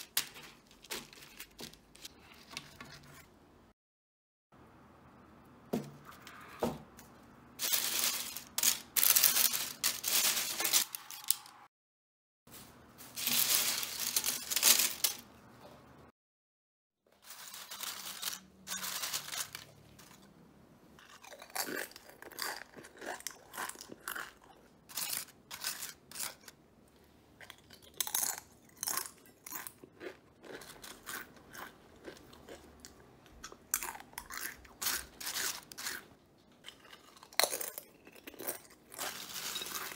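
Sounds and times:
chips crunching: 0.0 - 3.1, 7.6 - 11.6, 13.2 - 15.3, 17.2 - 20.3, 21.0 - 26.5, 27.4 - 39.9
chips rustling on parchment paper: 0.0 - 3.2, 7.6 - 11.5, 12.5 - 15.3, 17.1 - 20.3, 24.9 - 26.5, 34.2 - 36.0, 37.4 - 39.9.

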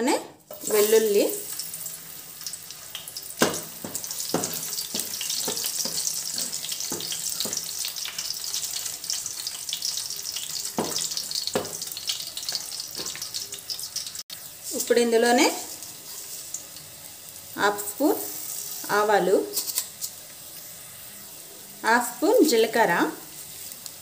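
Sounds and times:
garlic sizzling in oil: 0.4 - 24.0.

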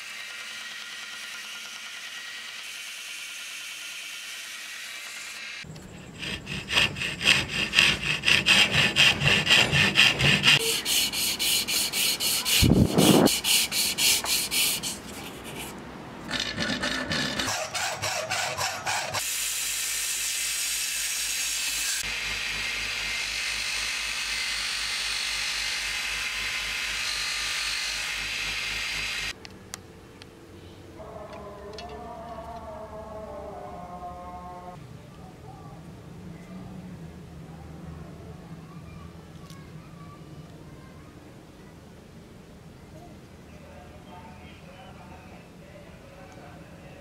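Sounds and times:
rasp scraping wood: 5.8 - 19.2.

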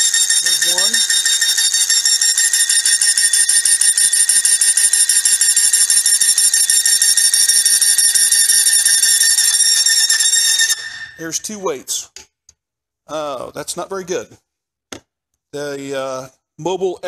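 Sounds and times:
high-pitched metal squeal: 9.2 - 11.6.

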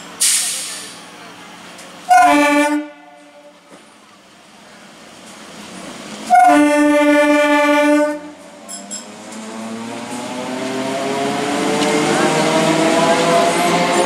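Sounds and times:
train running noise: 0.0 - 14.0
train horn blasts: 2.1 - 3.6, 6.3 - 8.4.

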